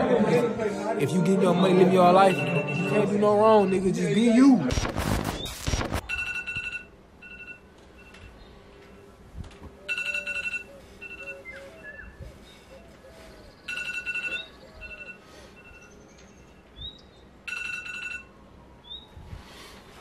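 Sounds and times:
phone alarm beeping: 1.6 - 4.2, 6.0 - 8.4, 9.9 - 11.6, 13.7 - 15.9, 17.5 - 18.3.

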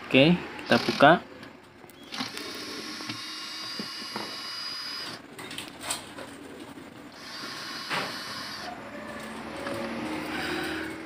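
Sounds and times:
electric drill whining: 2.1 - 5.2, 7.1 - 8.8.

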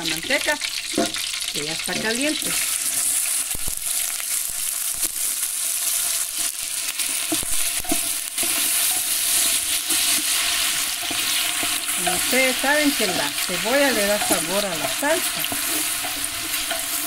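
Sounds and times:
onion sizzling in hot fat: 0.0 - 17.0
wooden spoon knocking pot: 10.9 - 17.0.

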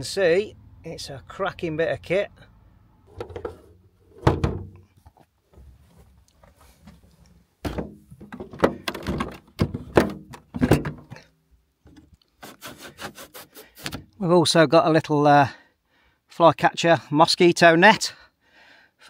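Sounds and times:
plastic vent lid thunking and creaking: 3.1 - 4.9, 7.6 - 11.2.

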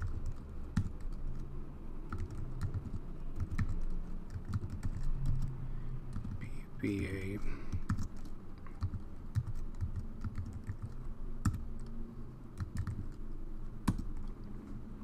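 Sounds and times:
typing on a keyboard: 0.0 - 1.5, 2.1 - 5.5, 6.1 - 6.5, 7.7 - 13.2, 13.8 - 14.4.

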